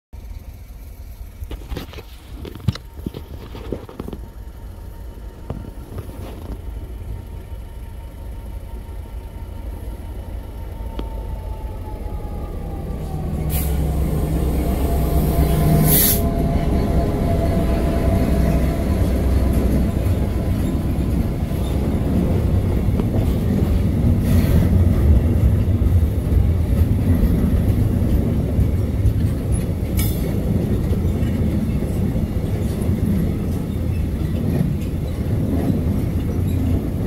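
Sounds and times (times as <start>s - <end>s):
diesel locomotive engine rumble: 0.2s - 37.0s
wagons rolling on rails: 12.2s - 37.0s.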